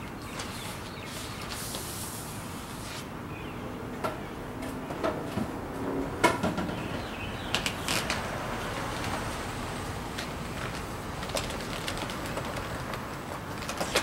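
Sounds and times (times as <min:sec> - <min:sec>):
plastic film rustling: 0:07.5 - 0:14.0.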